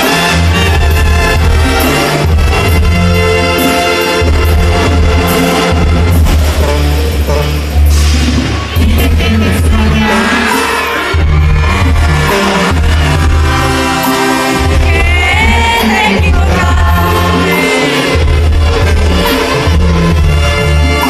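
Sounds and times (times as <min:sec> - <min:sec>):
brass and drums: 0:00.0 - 0:21.0
person singing: 0:08.7 - 0:20.2.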